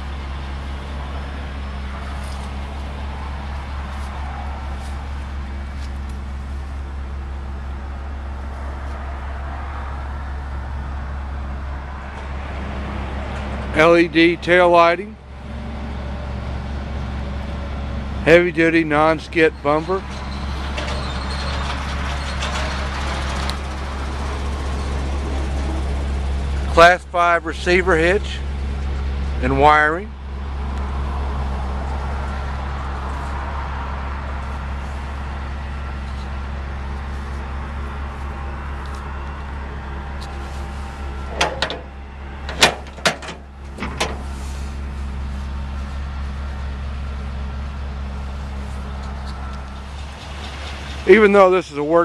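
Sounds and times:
truck engine idling: 0:00.0 - 0:52.0
sharp knocks and clicks: 0:41.3 - 0:41.9, 0:42.5 - 0:44.2.

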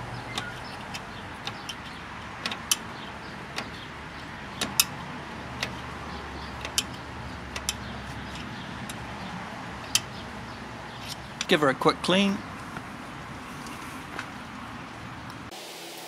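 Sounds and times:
metal clicks of screwdrivers: 0:06.6 - 0:09.0.

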